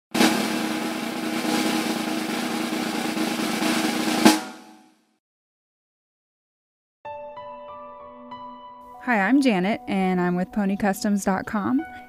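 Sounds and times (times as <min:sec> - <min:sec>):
snare drum roll: 0:00.1 - 0:05.0.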